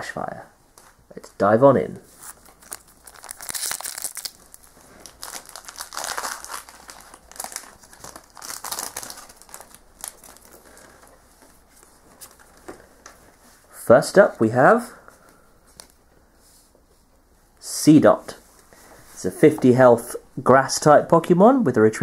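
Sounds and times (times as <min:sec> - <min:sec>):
foil wrapper tearing and crinkling: 0:02.2 - 0:10.9
faint rustles and clicks: 0:09.0 - 0:13.8.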